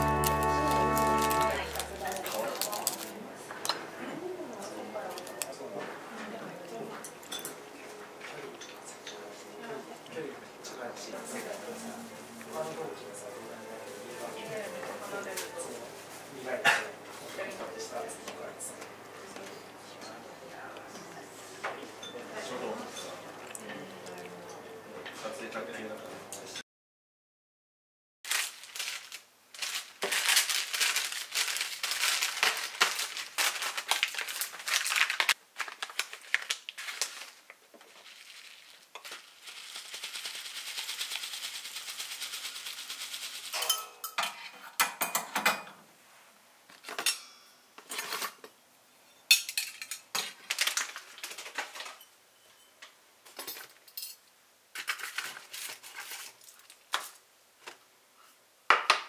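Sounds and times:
foil packets crinkling: 0.0s - 3.2s, 28.3s - 43.6s, 50.4s - 51.8s, 54.7s - 57.2s.

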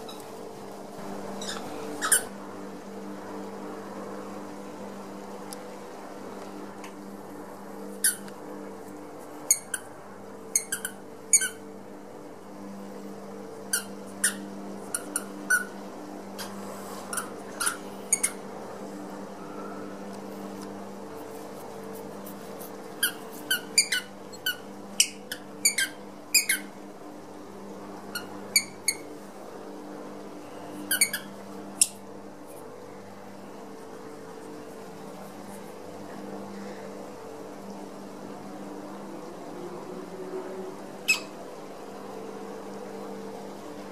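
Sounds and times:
steady low hum: 0.0s - 43.9s
squeaky ball squeaking: 1.4s - 2.3s, 13.7s - 15.7s, 17.1s - 18.4s, 23.0s - 26.6s, 30.9s - 32.0s.

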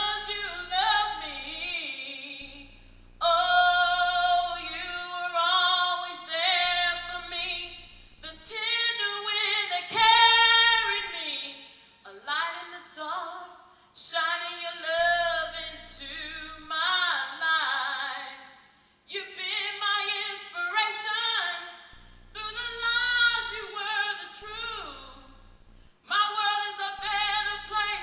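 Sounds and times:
woman singing unaccompanied: 0.0s - 25.4s, 26.0s - 28.0s.

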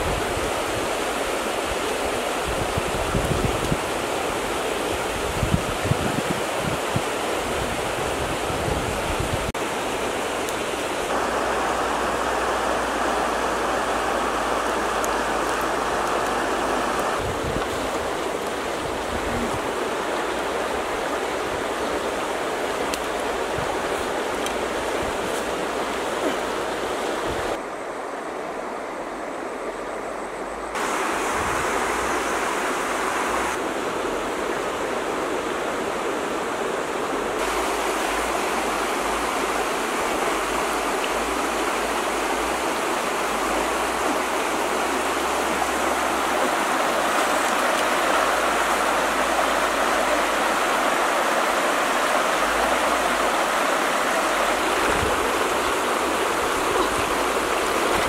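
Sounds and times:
shallow stream rushing: 0.0s - 58.0s.

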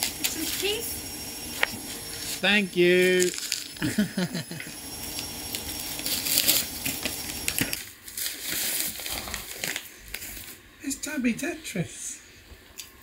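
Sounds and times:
wrapping paper tearing: 1.5s - 4.2s, 5.0s - 10.6s
tissue paper crinkling: 1.7s - 4.0s, 5.0s - 10.6s.

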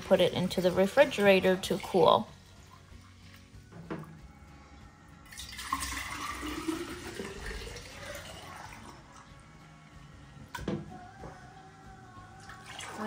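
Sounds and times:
milk pouring into glass jar: 5.2s - 9.3s.

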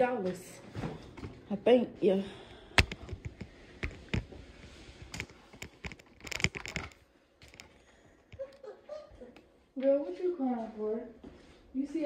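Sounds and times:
fabric rustling on microphone: 3.0s - 7.6s.

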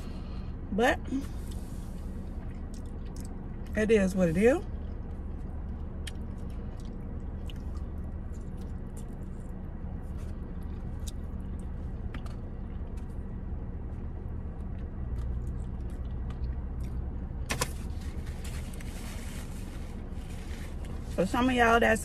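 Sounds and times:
low rumble: 0.0s - 22.0s
person chewing: 2.4s - 3.8s, 4.8s - 13.2s, 14.5s - 17.2s.

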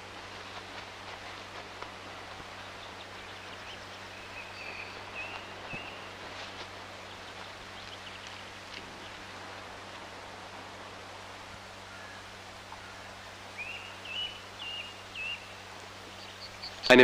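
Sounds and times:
faint clicks and rustling: 0.0s - 3.5s
film soundtrack hiss and hum: 0.0s - 17.0s.

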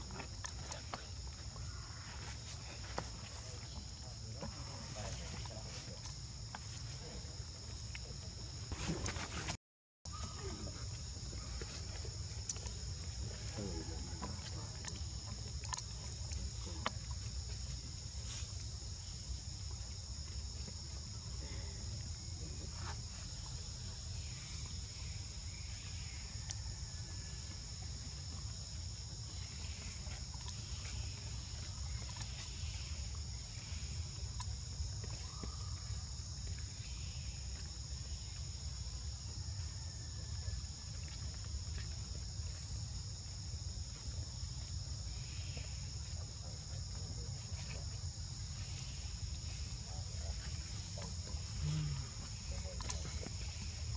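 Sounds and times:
insects trilling: 0.0s - 9.5s, 10.1s - 53.9s.

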